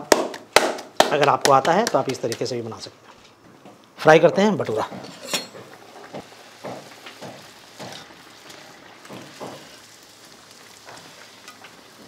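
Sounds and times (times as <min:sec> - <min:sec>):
bread deep-frying in oil: 0:05.1 - 0:12.0.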